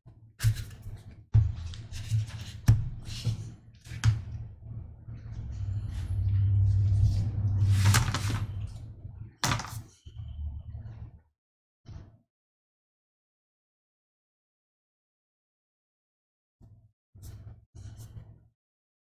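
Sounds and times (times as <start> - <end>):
rubbing and swishing: 1.5 - 9.0
low rumble: 4.2 - 9.4.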